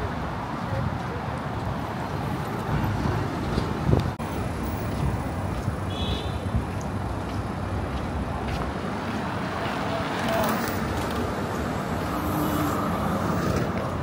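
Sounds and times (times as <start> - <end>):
city street traffic: 0.0 - 14.0
wind buffeting microphone: 0.9 - 9.4.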